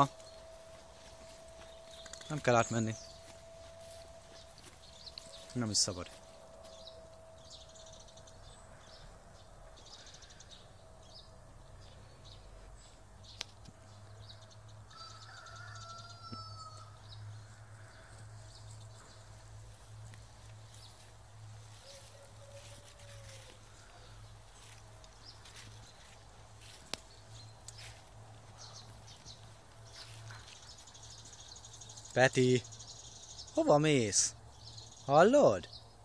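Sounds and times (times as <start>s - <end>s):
low steady hum: 0.0s - 14.9s
faint bird calls: 21.8s - 26.1s.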